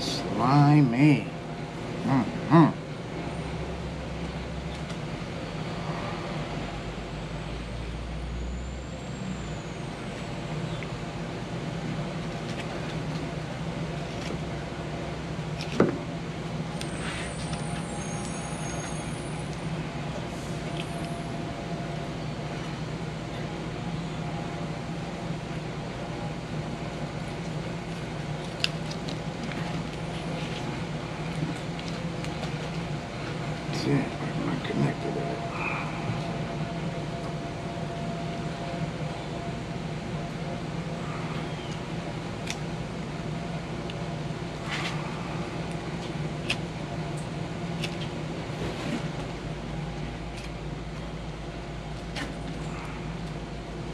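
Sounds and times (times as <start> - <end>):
low mechanical hum: 0.0 - 53.9.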